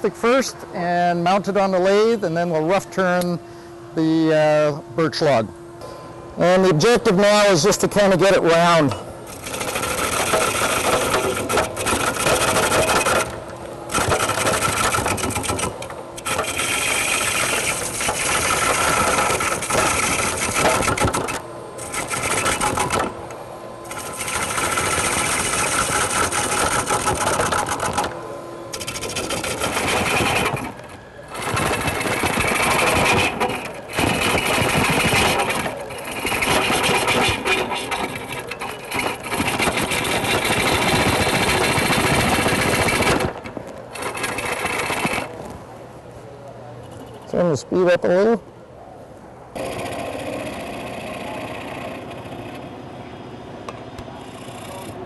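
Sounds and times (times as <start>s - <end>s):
gouge shearing wood on a lathe: 8.3s - 23.2s, 23.8s - 45.4s, 49.6s - 52.6s.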